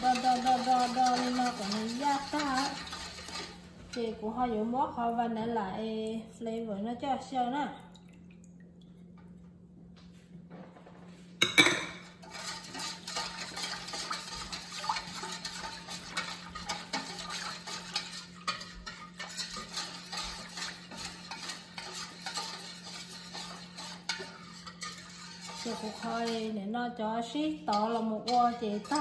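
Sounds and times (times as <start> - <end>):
whisk beating in a metal bowl: 0.0 - 4.8, 12.0 - 26.7, 27.4 - 29.0.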